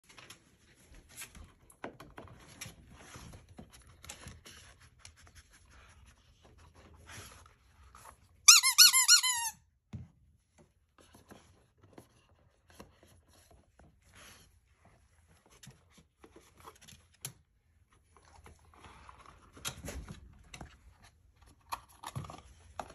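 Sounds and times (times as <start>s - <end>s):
squeaky dog toy squeaking: 8.5s - 9.6s
cardboard rustling and scratching: 17.8s - 22.9s.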